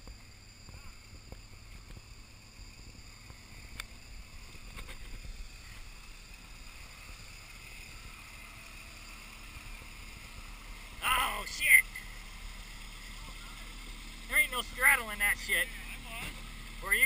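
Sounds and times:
engine rumble: 0.0s - 17.0s
faint clicks: 3.2s - 5.2s.

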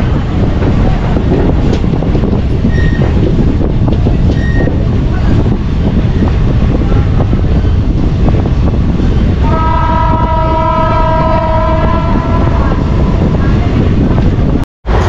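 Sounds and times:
train rumbling: 0.0s - 15.0s
wind noise: 0.0s - 15.0s
train horn blast: 9.4s - 13.4s.

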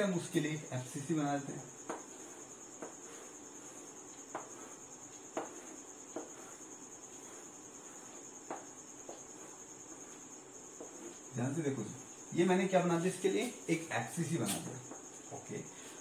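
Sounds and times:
chalk drawing on blackboard: 0.0s - 16.0s
chalk tapping on board: 1.7s - 11.3s, 14.4s - 15.4s.

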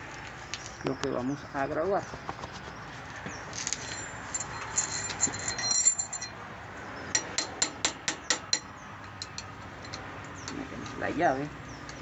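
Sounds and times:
wrench clinking on metal: 3.6s - 6.4s, 7.2s - 10.6s.

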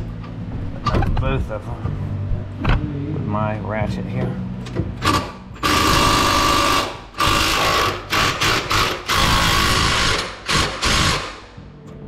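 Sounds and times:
electric ratchet whining: 5.0s - 11.4s.

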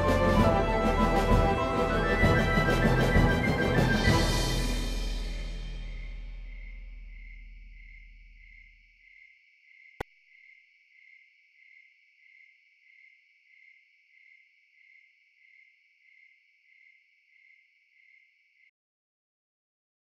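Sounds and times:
insect chirping: 5.4s - 18.7s.

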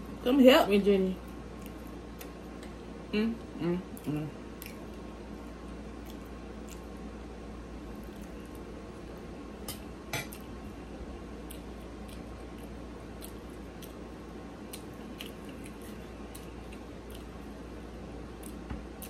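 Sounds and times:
low background hum: 0.0s - 19.0s
chewing clicks: 4.6s - 5.0s, 6.0s - 6.9s, 11.4s - 14.0s.

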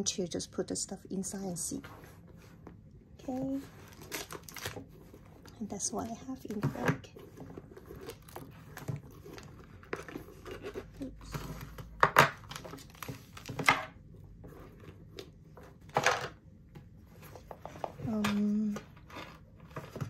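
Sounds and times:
small items rustling and crinkling: 1.2s - 20.0s.

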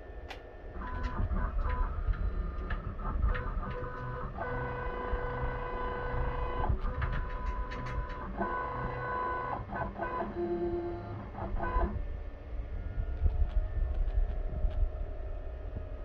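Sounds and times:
motors whining: 0.0s - 12.0s
machine clicks: 0.3s - 4.6s, 6.8s - 8.8s.

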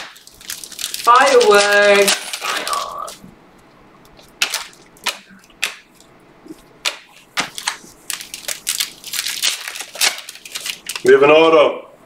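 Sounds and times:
trading cards flipping clicks: 4.1s - 11.1s.

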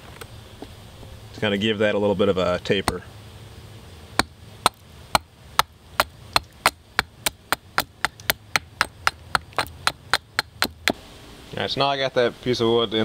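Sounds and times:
axe chopping wood: 4.2s - 11.0s.

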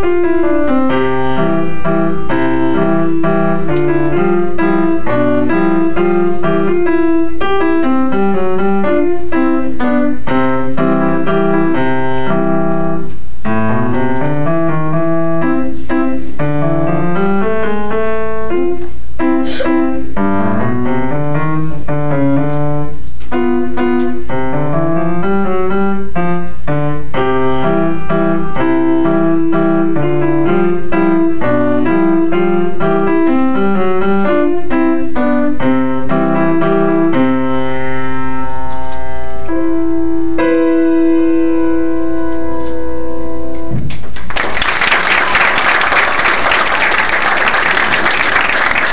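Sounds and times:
solo grand piano: 0.0s - 48.9s
audience applause: 44.1s - 48.9s.

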